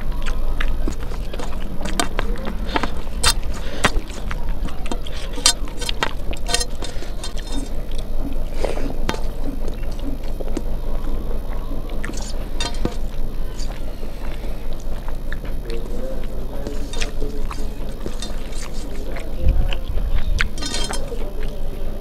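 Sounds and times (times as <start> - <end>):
fingers squishing rice on steel plate: 0.0 - 21.6
steady low hum: 0.0 - 22.0
wet chewing clicks and smacks: 0.0 - 22.0.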